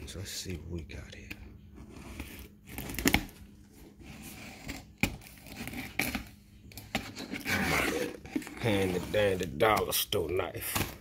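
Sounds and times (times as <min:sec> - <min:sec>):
cardboard tearing: 0:02.0 - 0:09.8
knife cutting cardboard box tape: 0:04.0 - 0:09.4.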